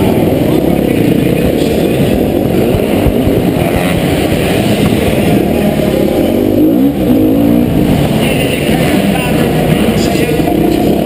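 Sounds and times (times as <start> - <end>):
dirt bike engine revving: 0.0 - 11.0.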